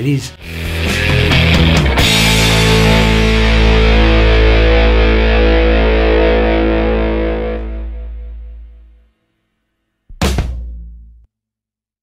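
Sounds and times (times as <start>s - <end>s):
distorted electric guitar chord: 0.4s - 9.0s.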